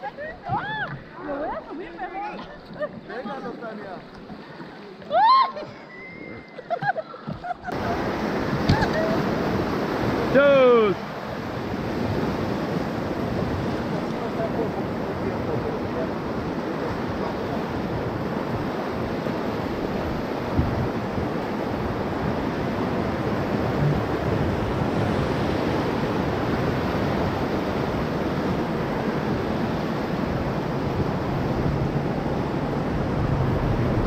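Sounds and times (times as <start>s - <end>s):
rapids rushing and churning: 7.7s - 34.0s.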